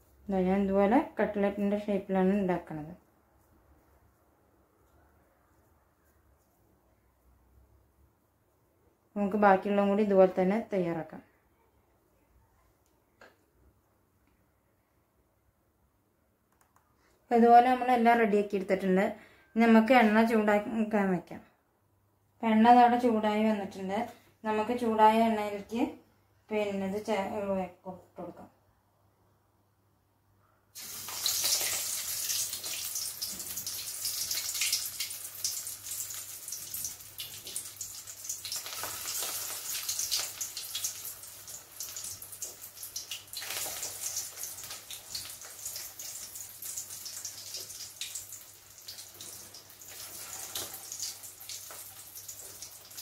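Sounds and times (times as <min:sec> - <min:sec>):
cutlets sizzling in hot oil: 0:30.8 - 0:53.0.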